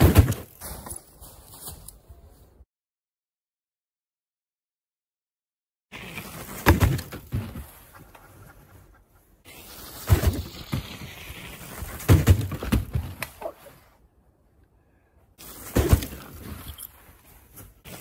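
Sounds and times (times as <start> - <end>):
bicycle and plastic ramps clattering: 5.9 - 7.9, 9.6 - 13.4.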